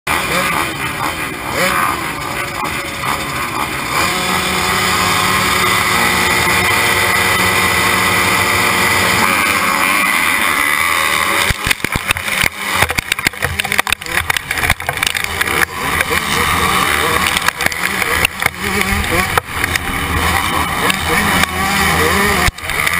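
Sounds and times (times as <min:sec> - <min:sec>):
motocross bikes revving: 0:00.1 - 0:22.9.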